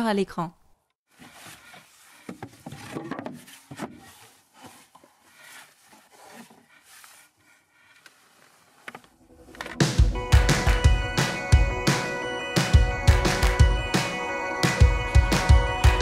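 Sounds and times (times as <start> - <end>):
wood rubbing on wood: 1.1 - 9.1.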